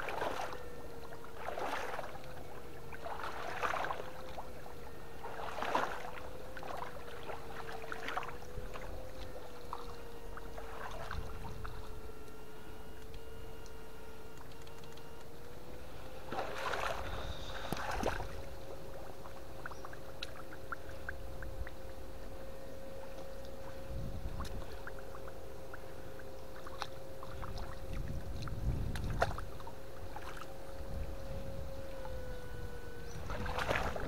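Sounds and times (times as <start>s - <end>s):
electric fish-shocker whine: 0.0s - 34.0s
water sloshing and splashing: 0.0s - 34.0s
small clicks: 12.2s - 15.6s.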